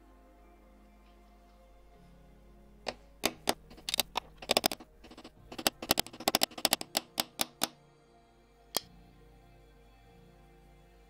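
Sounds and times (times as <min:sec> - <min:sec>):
faint background music: 0:00.0 - 0:11.0
hammer tapping metal punch: 0:02.9 - 0:07.7.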